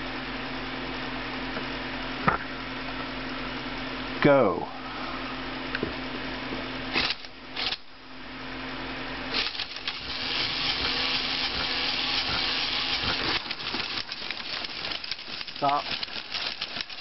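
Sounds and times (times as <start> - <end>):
toy gear motors whirring: 6.9 - 7.8, 9.3 - 17.0
rapid gear ticking: 9.3 - 17.0.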